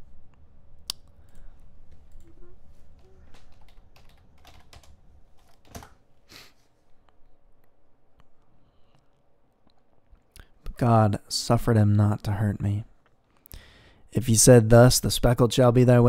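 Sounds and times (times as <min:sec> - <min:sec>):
loud keyboard clacks: 0:03.4 - 0:06.0.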